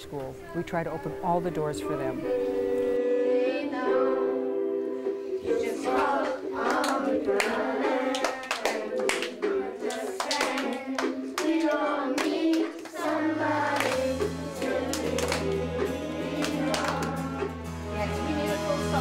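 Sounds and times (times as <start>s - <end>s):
children singing: 2.0s - 19.0s
hands clapping in rhythm: 5.7s - 17.7s.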